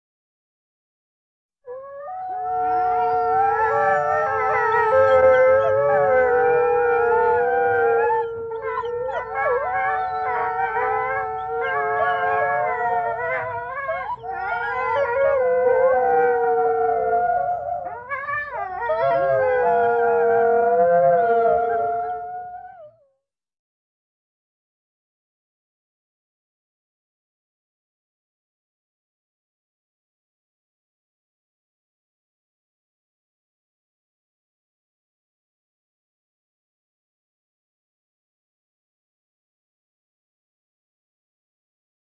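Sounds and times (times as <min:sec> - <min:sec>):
wolves howling in chorus: 0:01.7 - 0:23.0.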